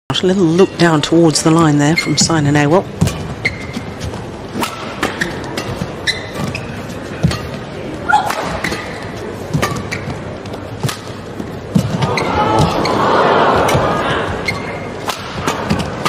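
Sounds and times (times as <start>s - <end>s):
shoes squeaking on court: 0.4s - 16.0s
rackets striking shuttlecock: 3.0s - 6.6s, 10.8s - 12.7s, 14.5s - 16.0s.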